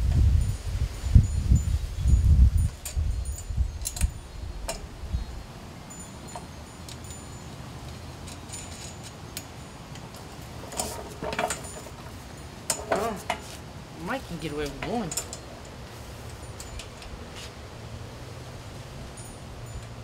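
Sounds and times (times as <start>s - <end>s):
light metallic clinks: 5.9s - 13.5s, 14.7s - 17.5s, 19.1s - 20.0s.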